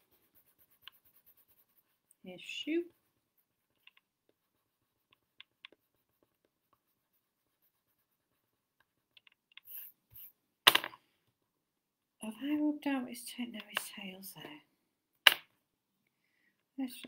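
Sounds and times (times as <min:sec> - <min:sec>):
hand brushing across paper: 0:00.0 - 0:08.6, 0:09.6 - 0:10.4
pencil scratching on paper: 0:00.0 - 0:10.4.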